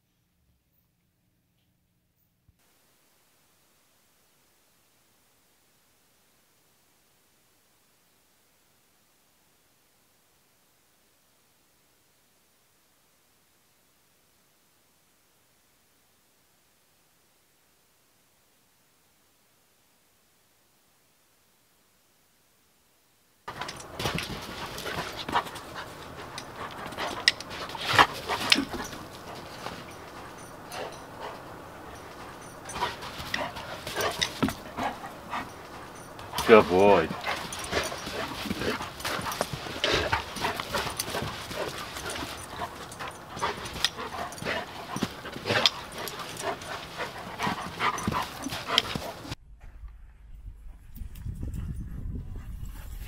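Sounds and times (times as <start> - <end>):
dog panting: 23.5 - 49.4.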